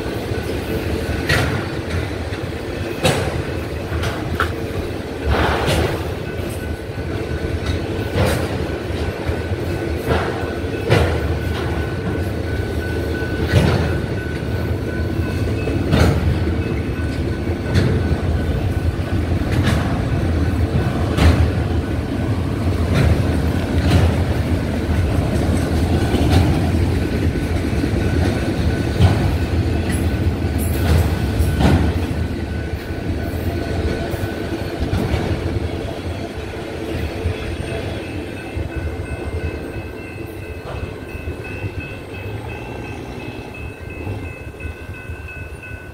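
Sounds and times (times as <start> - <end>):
train wheels rumbling on rail: 0.0 - 45.9
wheels clacking on rail joints: 0.0 - 45.9.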